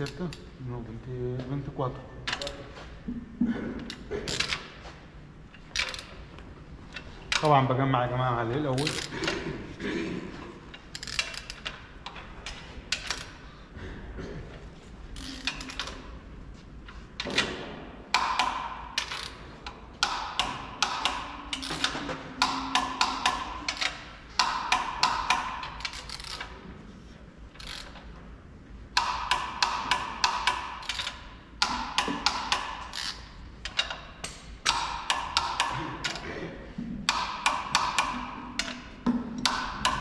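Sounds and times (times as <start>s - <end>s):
ratchet wrench clicking: 5.7s - 6.2s, 8.7s - 9.1s, 10.9s - 13.4s, 15.2s - 16.0s, 18.1s - 26.6s, 27.6s - 28.0s, 29.0s - 36.2s.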